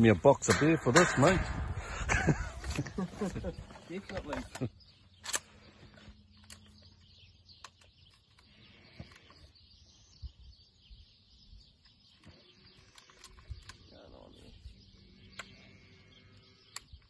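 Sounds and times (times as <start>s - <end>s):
faint bird chirps: 3.4s - 17.0s.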